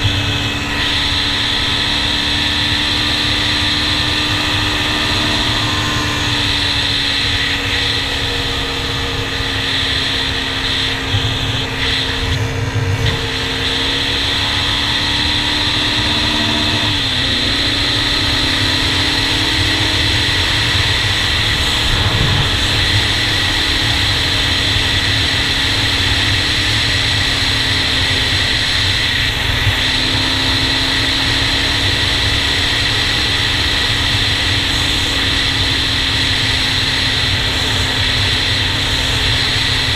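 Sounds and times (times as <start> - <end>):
quad engine running: 0.0 - 39.9
wind over microphone: 20.4 - 25.7.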